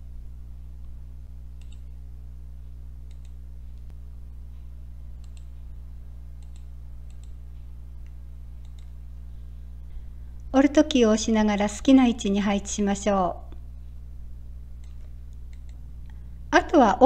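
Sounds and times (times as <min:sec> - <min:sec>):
low electrical hum: 0:00.0 - 0:17.0
computer mouse clicking: 0:01.6 - 0:01.9, 0:03.0 - 0:03.9, 0:05.2 - 0:05.6, 0:06.4 - 0:07.4, 0:08.0 - 0:09.0, 0:14.8 - 0:15.8.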